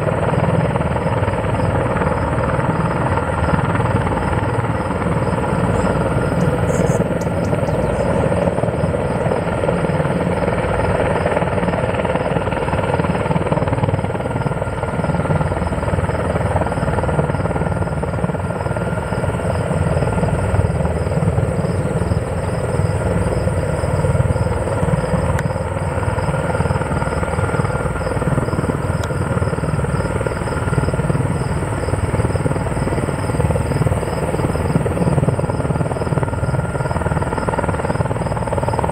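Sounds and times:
helicopter rotor rumble: 0.0s - 38.9s
turbine engine whine: 0.0s - 38.9s.

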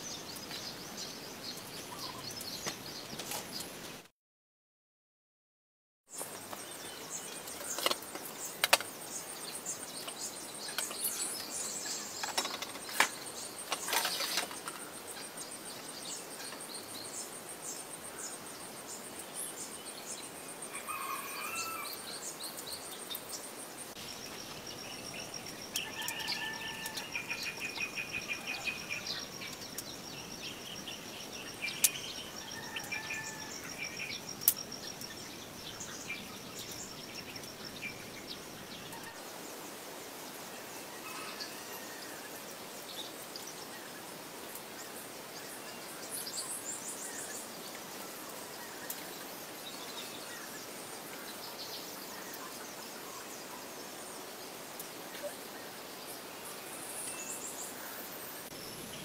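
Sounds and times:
birds chirping: 0.0s - 4.0s, 6.1s - 39.5s
insects trilling: 6.1s - 59.0s.

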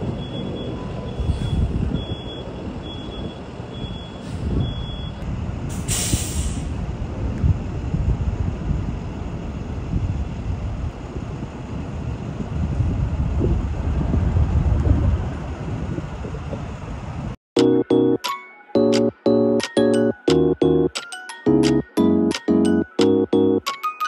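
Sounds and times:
low rumble of trains: 0.0s - 17.4s
air brakes hissing: 1.0s - 2.2s, 4.0s - 5.1s, 5.7s - 6.8s.

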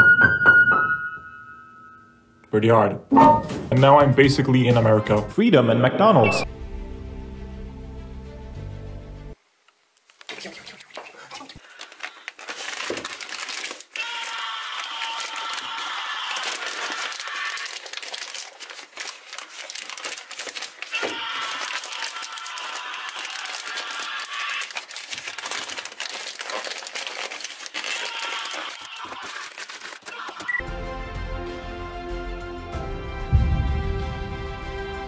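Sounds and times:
music: 3.1s - 9.4s, 30.6s - 35.0s
paper wrapper crinkling: 10.0s - 30.6s.

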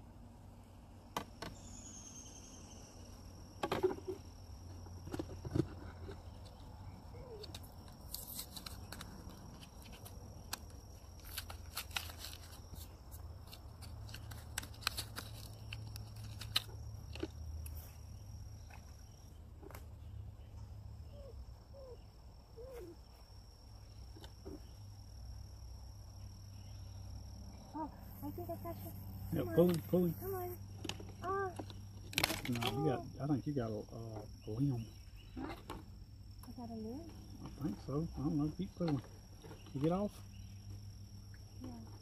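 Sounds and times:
high-pitched insect drone: 26.5s - 31.6s, 32.4s - 35.3s.

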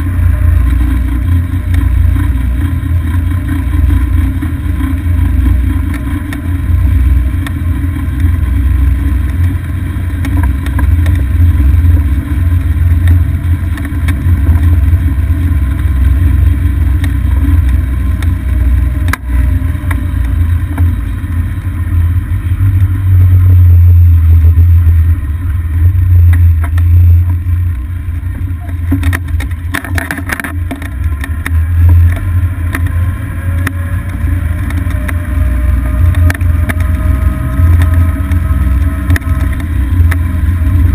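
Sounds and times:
road noise: 0.0s - 40.9s
clicks and rattles: 28.4s - 40.9s.

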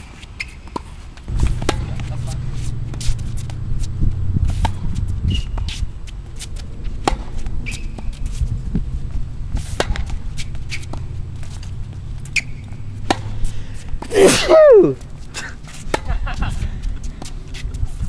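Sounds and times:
shoe squeaks: 0.0s - 1.2s, 1.8s - 8.6s, 9.6s - 13.1s
tennis ball hits and bounces: 0.0s - 5.8s, 6.4s - 14.5s, 15.7s - 16.2s
steady low hum: 1.3s - 14.2s.

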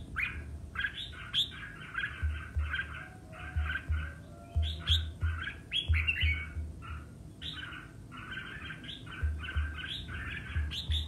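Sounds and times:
bird chirping song: 0.0s - 11.0s.

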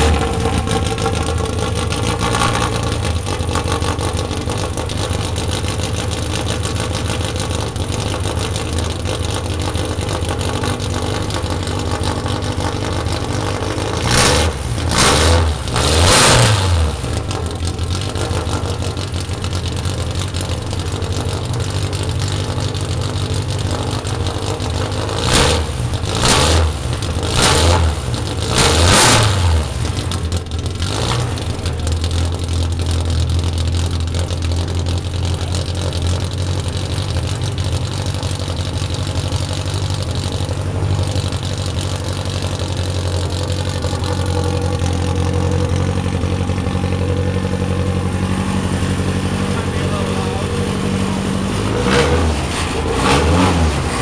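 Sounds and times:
engine throttle blips: 0.0s - 54.0s
race car engine idling: 0.0s - 54.0s.

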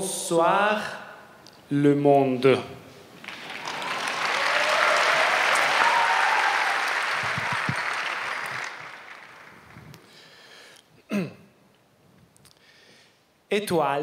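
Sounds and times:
audience applauding: 3.2s - 10.3s.

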